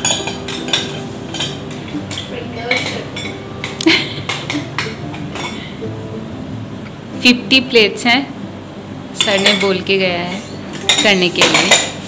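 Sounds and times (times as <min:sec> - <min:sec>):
glass dishes clinking: 0:00.0 - 0:05.7, 0:09.2 - 0:12.0
steady hum: 0:00.0 - 0:12.0.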